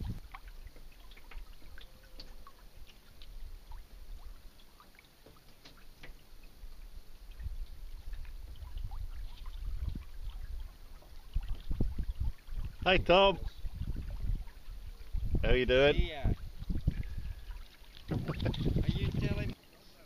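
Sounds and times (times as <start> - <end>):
water lapping against a hull: 0.0 - 20.0.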